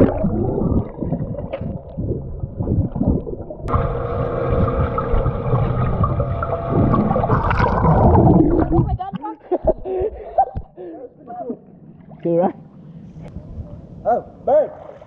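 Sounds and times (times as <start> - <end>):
underwater rumbling water movement: 0.0 - 10.7
steady hum: 0.0 - 14.5.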